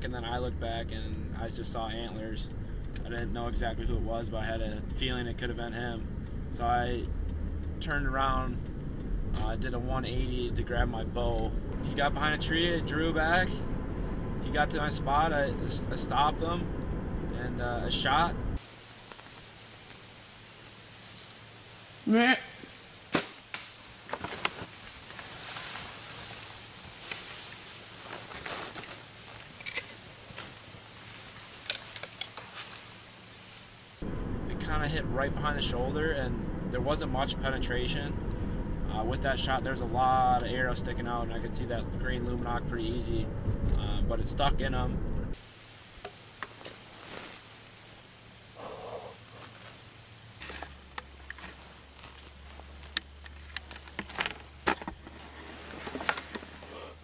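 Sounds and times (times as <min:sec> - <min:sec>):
faint steady background noise: 0:00.0 - 0:57.0
low steady hum: 0:00.0 - 0:57.0
rustles and light clicks: 0:18.6 - 0:22.0, 0:22.6 - 0:33.8, 0:49.0 - 0:57.0
twigs ticking and snapping: 0:18.6 - 0:22.0, 0:22.6 - 0:33.7, 0:49.2 - 0:56.7.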